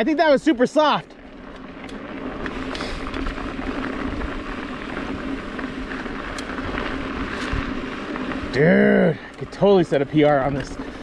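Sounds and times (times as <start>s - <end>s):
bike rattles and clicks: 0.0s - 11.0s
bike tyres on dirt trail: 0.0s - 11.0s
wind rumble on microphone: 2.2s - 8.6s.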